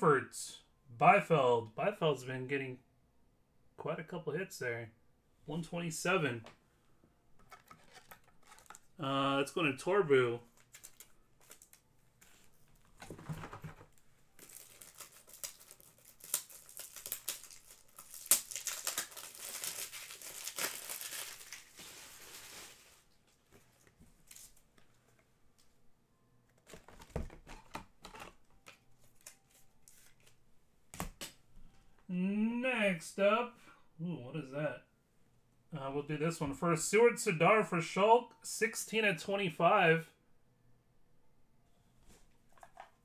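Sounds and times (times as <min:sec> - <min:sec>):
card packaging crinkling: 0:07.5 - 0:08.9, 0:10.5 - 0:11.8, 0:13.9 - 0:23.1, 0:26.6 - 0:30.4.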